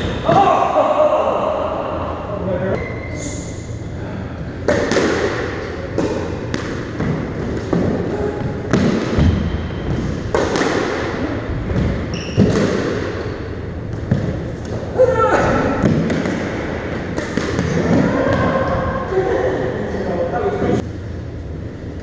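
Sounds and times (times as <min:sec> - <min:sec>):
shoe squeaks: 0:02.8 - 0:03.7, 0:12.1 - 0:12.5
ball hitting walls echoing: 0:04.4 - 0:19.2
squash ball cracking off rackets: 0:04.6 - 0:08.1, 0:08.7 - 0:13.3.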